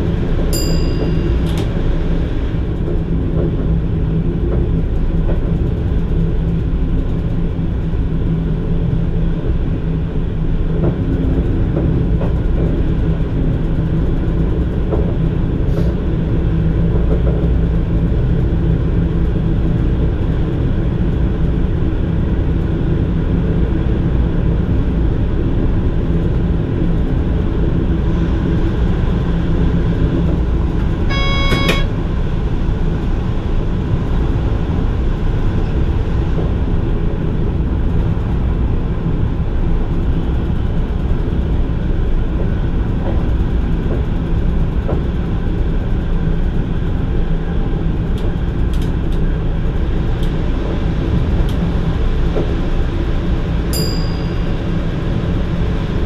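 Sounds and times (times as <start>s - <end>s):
train wheels rumbling on rails: 0.0s - 56.0s
short high beep: 31.1s - 31.9s.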